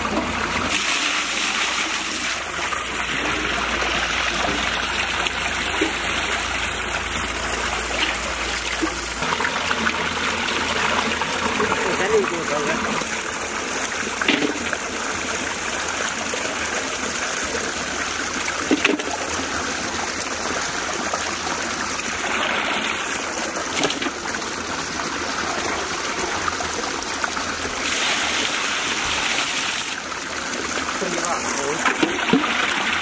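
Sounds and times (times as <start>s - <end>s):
water poured into metal vessel: 0.0s - 17.4s, 27.5s - 33.0s
water running and splashing: 0.0s - 33.0s.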